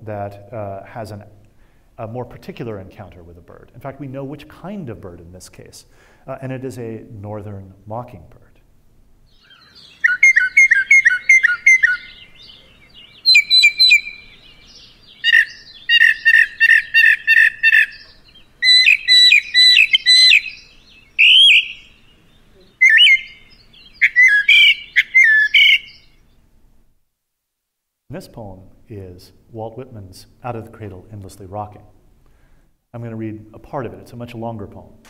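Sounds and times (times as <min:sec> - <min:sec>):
mockingbird singing: 0:09.2 - 0:26.4.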